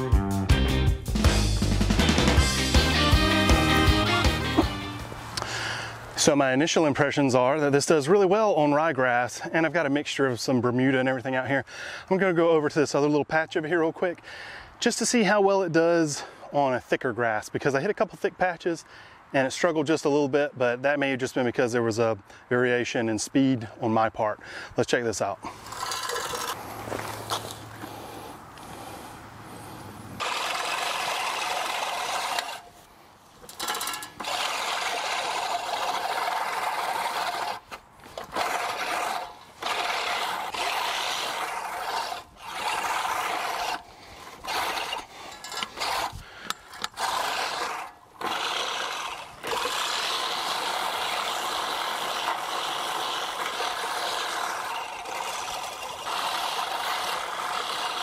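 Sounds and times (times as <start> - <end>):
reel mower blades cutting grass: 1.1 - 6.3, 25.4 - 58.0.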